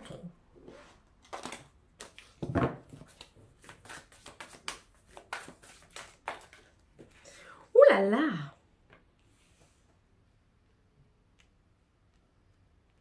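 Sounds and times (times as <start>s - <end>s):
cards being shuffled: 1.2s - 7.2s.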